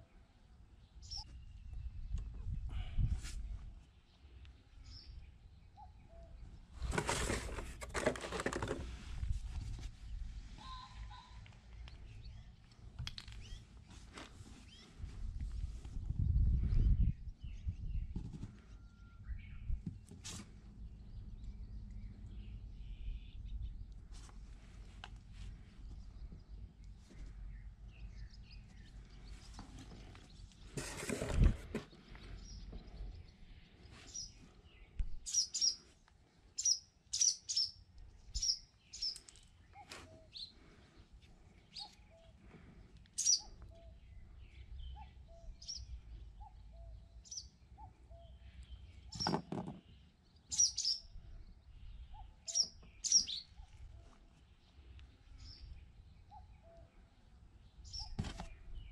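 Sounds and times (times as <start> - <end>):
small birds chirping: 0.1 - 3.1, 9.9 - 58.9.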